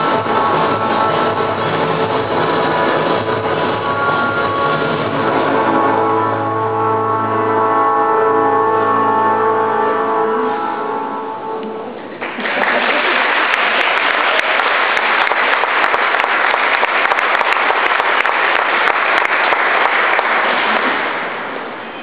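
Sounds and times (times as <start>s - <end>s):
music with held notes: 0.0s - 12.2s
audience applauding: 12.2s - 21.9s.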